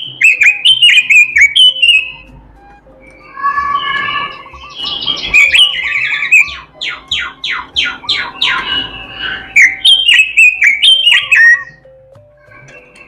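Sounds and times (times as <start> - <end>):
bird singing: 0.0 - 11.9.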